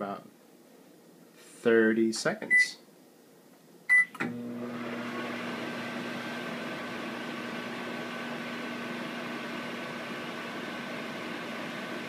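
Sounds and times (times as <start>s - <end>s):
microwave keypad beep: 3.9s - 4.1s
microwave humming with fan whir: 3.9s - 12.0s.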